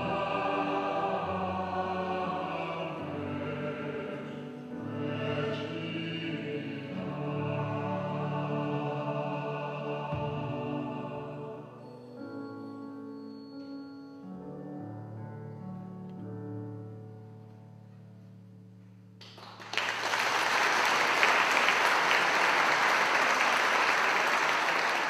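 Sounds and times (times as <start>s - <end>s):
instrumental hymn chords: 0.0s - 19.2s
audience applauding: 19.2s - 25.0s.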